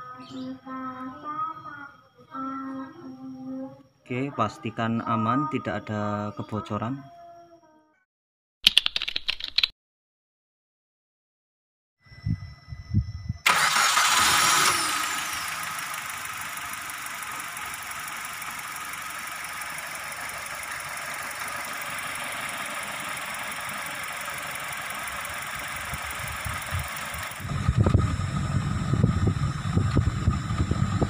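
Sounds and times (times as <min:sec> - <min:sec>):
car engine starting and idling: 0:13.4 - 0:31.0.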